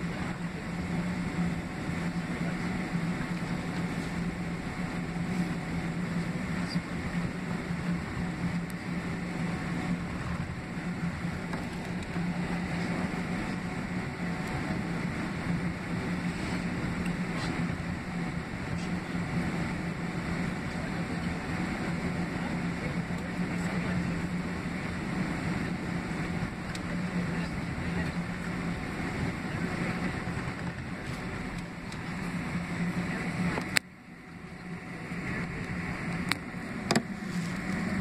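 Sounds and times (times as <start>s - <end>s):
airplane cabin rumble and hiss: 0.0s - 38.0s
low hum: 0.0s - 38.0s.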